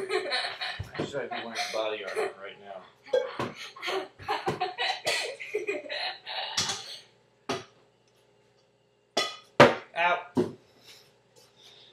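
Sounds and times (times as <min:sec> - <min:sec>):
person coughing and laughing: 0:03.1 - 0:05.8.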